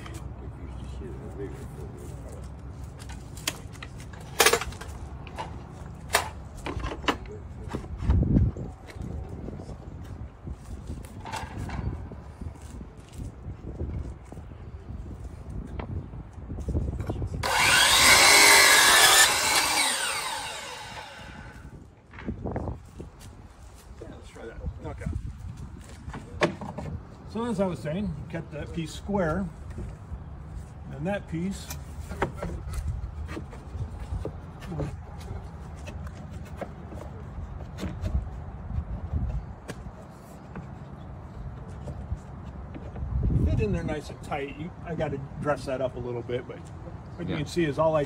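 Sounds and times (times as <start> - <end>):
miter saw cutting and spinning down: 17.4 - 21.7.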